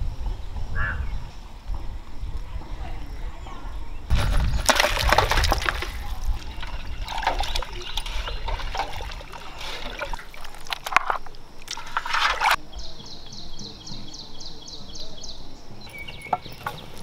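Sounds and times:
water splashing in a vessel: 4.1 - 12.6.

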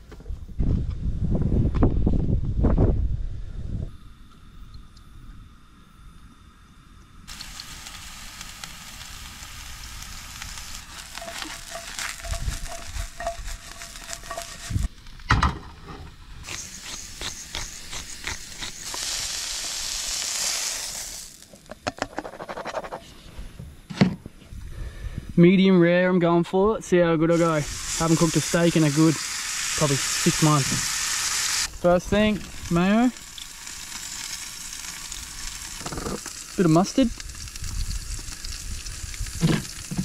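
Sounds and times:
mushrooms sizzling in oil: 7.3 - 15.2, 16.4 - 21.7, 27.3 - 40.0.

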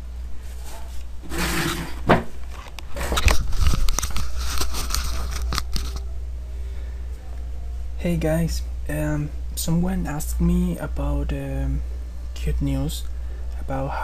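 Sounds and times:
steady low hum: 0.0 - 14.0
rustling and crackling: 0.4 - 6.1.

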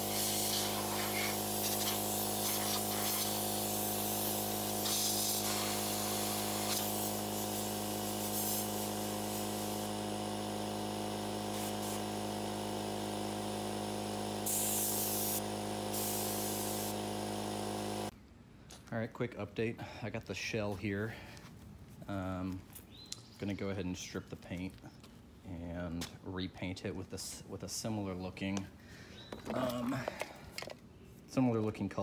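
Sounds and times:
compressed air hissing: 0.0 - 18.1.

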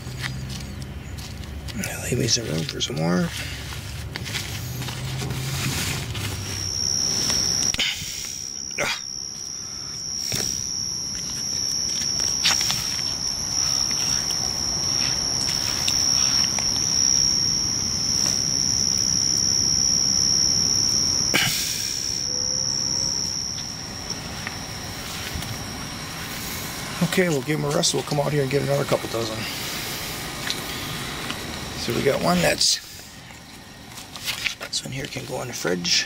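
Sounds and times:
crickets trilling: 0.0 - 36.0
rustling: 0.1 - 8.6, 9.3 - 18.8.

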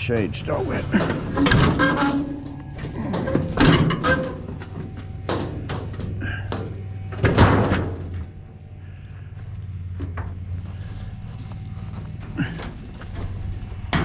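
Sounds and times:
metal cabinet knocks and thumps: 0.9 - 8.2.

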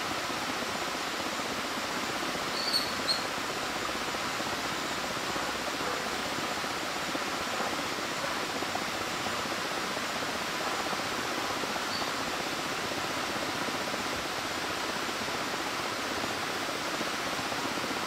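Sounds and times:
river rapids rushing: 0.0 - 18.0
short high chirps: 2.5 - 3.3.

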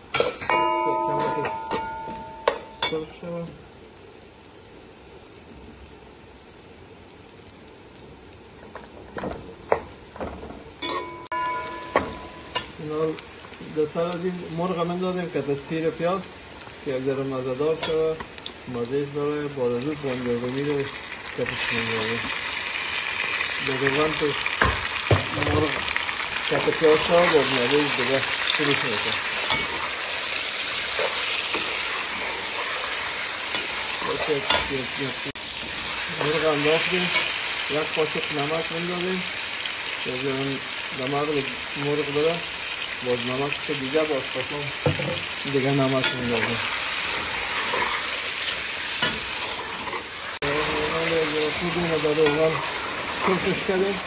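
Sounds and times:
onions frying in oil: 0.0 - 54.0
spatula scraping a metal pot: 47.1 - 48.2.

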